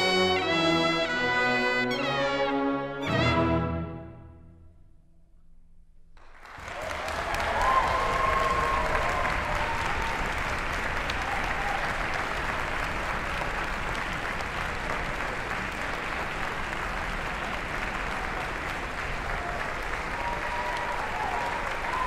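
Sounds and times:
audience applauding: 0:06.2 - 0:22.0.

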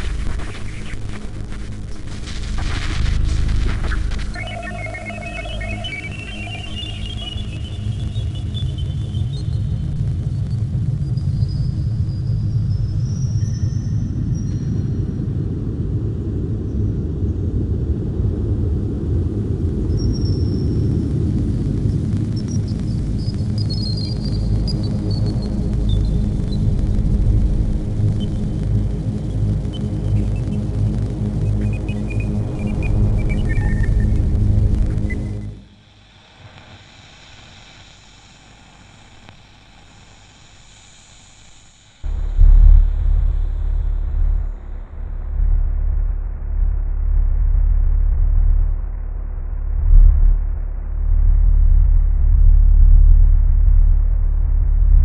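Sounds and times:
deep rumbling drone: 0:00.0 - 0:36.0, 0:42.0 - 0:55.0
faint high whistling tones: 0:03.9 - 0:10.0, 0:31.5 - 0:34.2
thin high tones: 0:04.4 - 0:07.9
faint steady hiss: 0:19.9 - 0:46.1.

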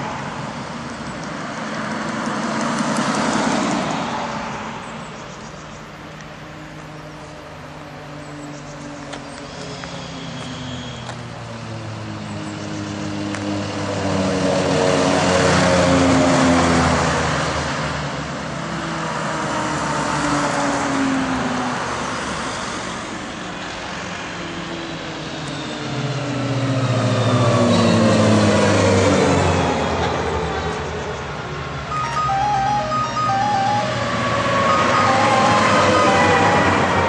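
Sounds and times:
military vehicles driving past: 0:31.9 - 0:37.0.

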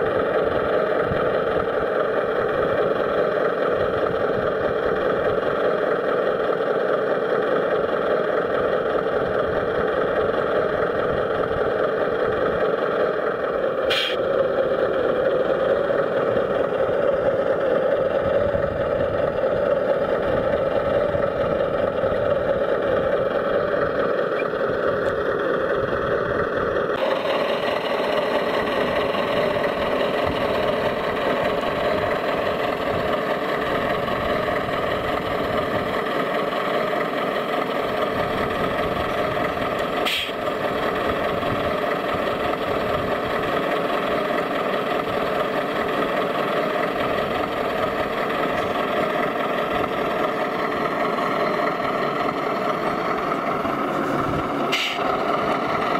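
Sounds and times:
rc truck engine drone: 0:00.0 - 0:55.9
sharp click: 0:13.9 - 0:14.2.

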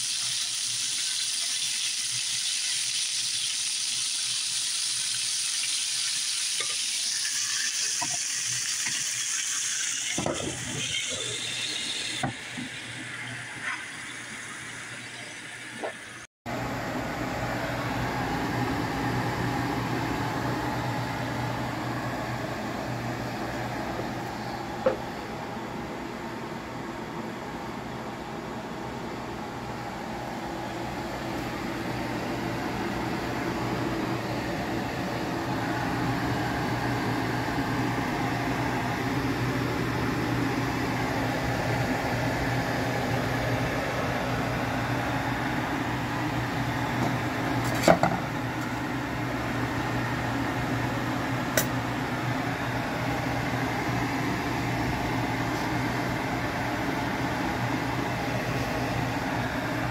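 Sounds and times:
saucepan hissing on stove: 0:00.0 - 0:16.0.

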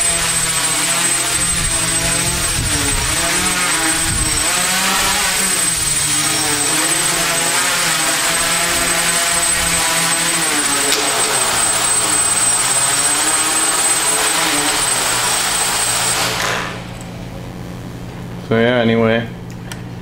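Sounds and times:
quadcopter motors buzzing: 0:00.0 - 0:18.0.

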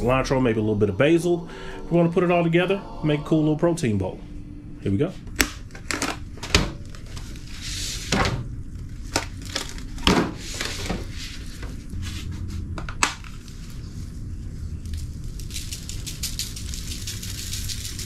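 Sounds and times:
plastic and foil crinkling: 0:08.8 - 0:10.9, 0:13.2 - 0:18.0
seasoning shaker ticking: 0:15.0 - 0:18.0.

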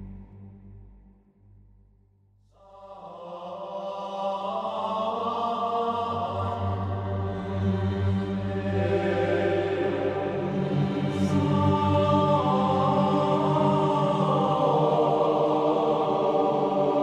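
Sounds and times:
low drone: 0:00.0 - 0:01.7, 0:05.3 - 0:17.0
voices singing slow chant: 0:02.5 - 0:17.0.

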